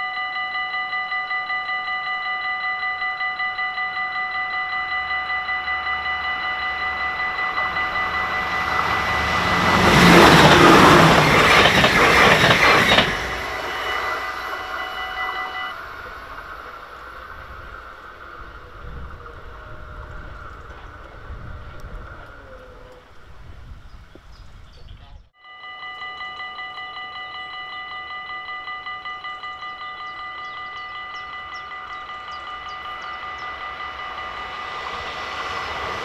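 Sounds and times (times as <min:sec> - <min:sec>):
level crossing bell ringing: 0:00.0 - 0:11.6, 0:12.6 - 0:16.4, 0:25.4 - 0:36.0
train passing: 0:00.0 - 0:23.9, 0:25.7 - 0:36.0.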